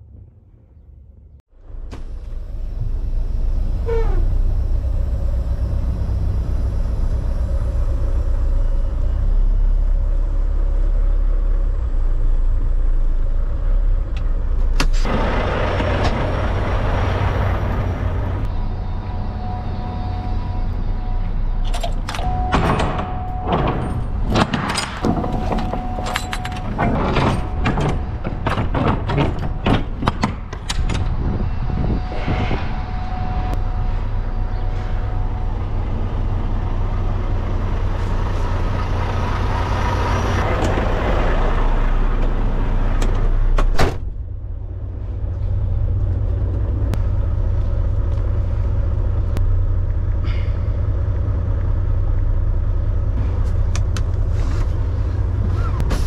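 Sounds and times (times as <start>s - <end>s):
diesel truck idling: 1.6s - 32.1s, 33.1s - 56.0s
door shutting with a bang: 21.8s - 33.6s, 43.6s - 44.2s
clanks and knocks of trailer doors: 22.0s - 31.2s.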